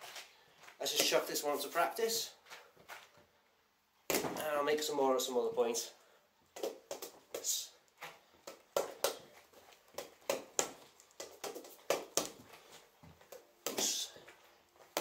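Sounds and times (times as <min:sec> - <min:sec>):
fists slapping punching bag: 0:09.9 - 0:12.4.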